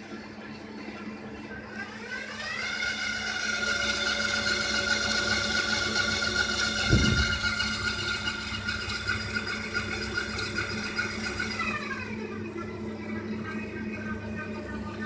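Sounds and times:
electric motor whine: 0:01.4 - 0:15.0
constant low hum: 0:06.2 - 0:15.0
low thump: 0:06.9 - 0:07.4.

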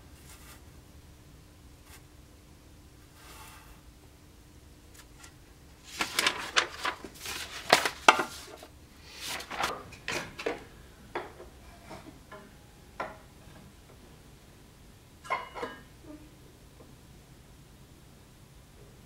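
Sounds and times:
paper rustling and sliding: 0:05.8 - 0:09.8.

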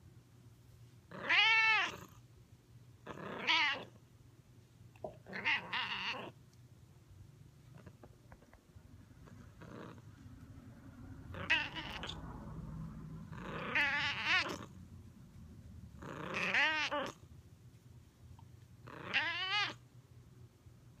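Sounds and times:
cat meowing loudly: 0:01.1 - 0:02.0, 0:03.2 - 0:03.9, 0:05.3 - 0:06.3, 0:11.4 - 0:12.2, 0:13.5 - 0:14.7, 0:16.2 - 0:17.2, 0:18.9 - 0:19.8.

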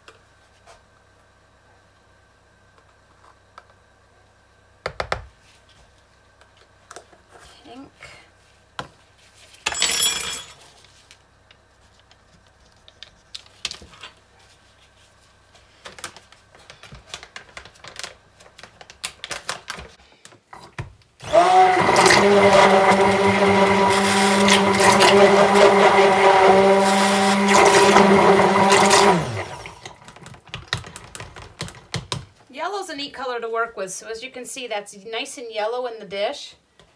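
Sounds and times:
stick blender motor: 0:21.2 - 0:30.2.

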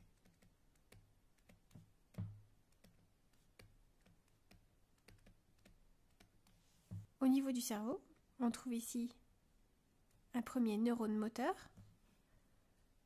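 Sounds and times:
faint clicks and light taps: 0:00.0 - 0:07.1.

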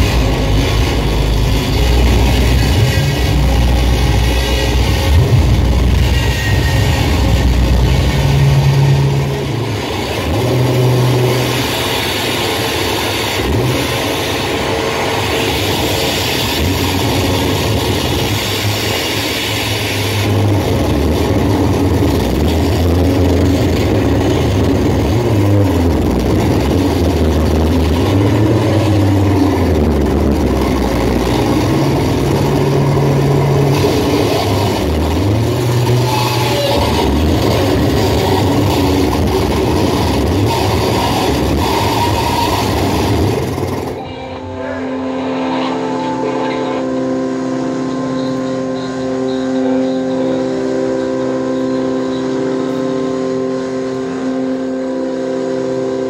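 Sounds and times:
harsh static: 0:00.0 - 0:56.0
low drones: 0:00.0 - 0:56.0.

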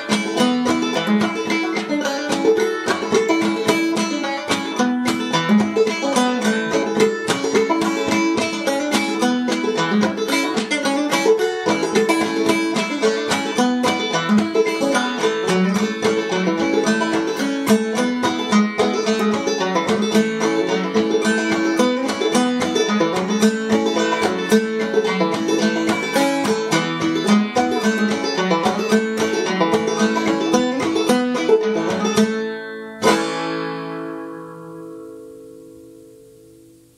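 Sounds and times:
banjo playing: 0:00.0 - 0:36.9.

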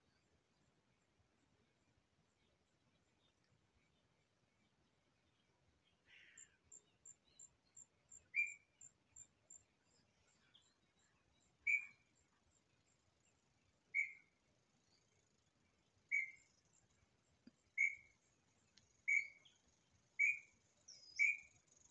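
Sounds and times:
bird calls: 0:06.1 - 0:08.8, 0:10.2 - 0:12.1, 0:13.9 - 0:14.4, 0:16.1 - 0:16.8, 0:17.5 - 0:18.2, 0:18.9 - 0:21.9.

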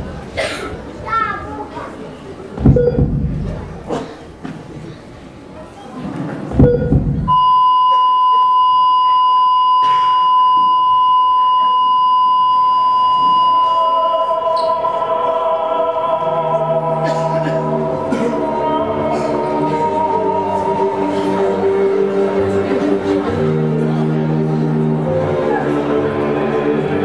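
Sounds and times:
heart monitor flatline beep: 0:02.7 - 0:03.2, 0:06.6 - 0:14.2
music: 0:13.1 - 0:27.0.

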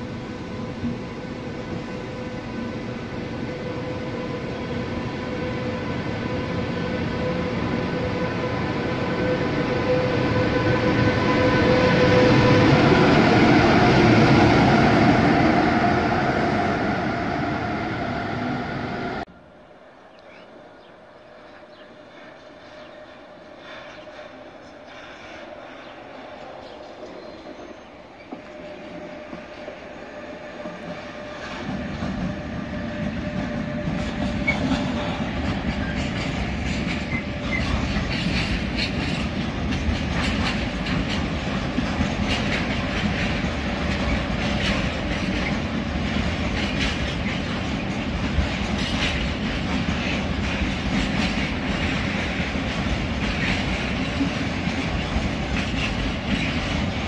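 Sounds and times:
freight train rolling past: 0:00.0 - 0:57.0
wheels clicking over rail joints: 0:33.0 - 0:57.0.

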